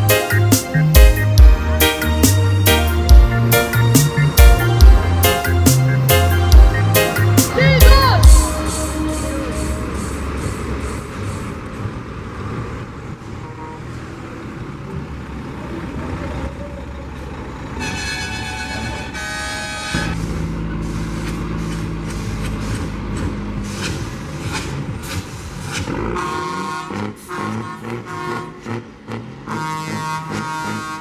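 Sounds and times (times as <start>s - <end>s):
diesel trucks rumbling past: 0.0s - 31.0s
truck air horn blasts: 4.5s - 10.9s, 17.8s - 21.0s, 25.9s - 31.0s.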